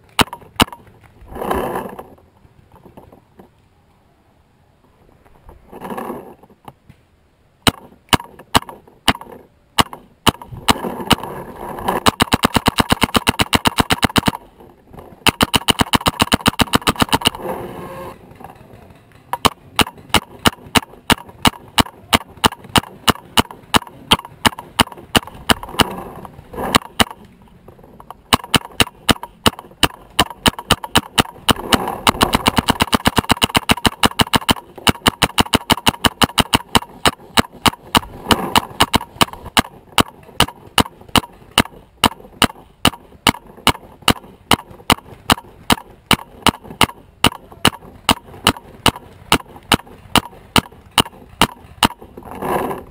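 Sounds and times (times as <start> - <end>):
paintball markers firing: 0.0 - 1.0, 7.6 - 11.3, 11.9 - 17.4, 18.8 - 27.4, 28.0 - 52.9.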